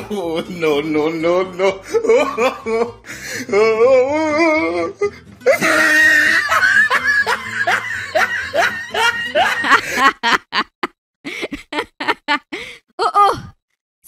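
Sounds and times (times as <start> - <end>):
cartoon character laughing: 5.5 - 12.7.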